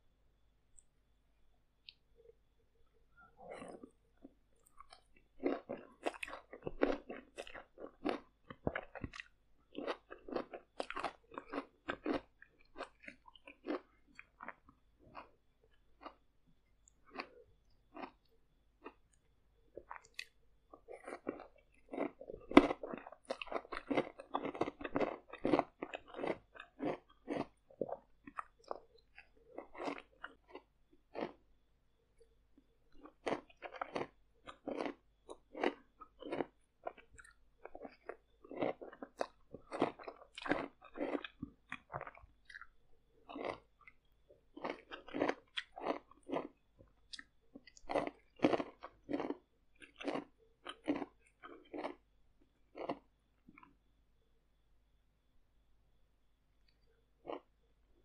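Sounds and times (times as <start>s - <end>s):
loud close-up chewing: 3.5s - 16.2s, 16.8s - 19.1s, 19.8s - 31.4s, 32.9s - 52.0s, 52.7s - 53.7s, 57.2s - 57.5s.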